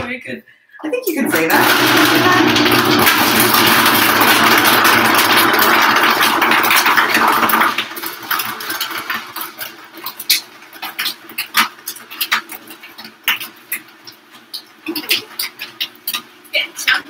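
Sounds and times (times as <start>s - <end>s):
blender running: 1.1s - 13.8s.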